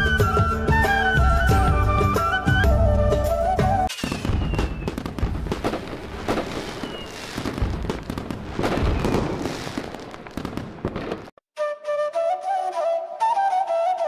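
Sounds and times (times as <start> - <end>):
falling firework whistles: 0.0 - 11.3
fireworks crackling and popping: 3.8 - 11.4.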